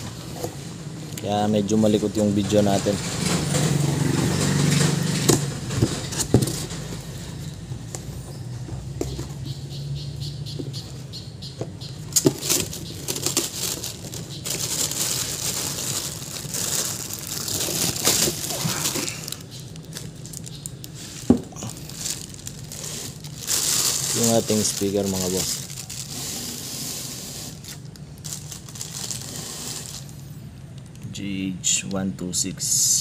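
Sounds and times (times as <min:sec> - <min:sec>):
plastic wrapping rustling: 0:00.0 - 0:07.6, 0:12.1 - 0:30.9.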